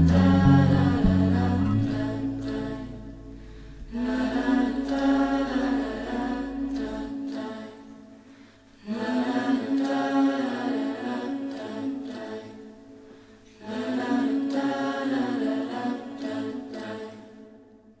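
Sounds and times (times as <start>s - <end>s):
low steady tone: 0.0s - 8.9s
choir singing long notes: 0.0s - 18.0s.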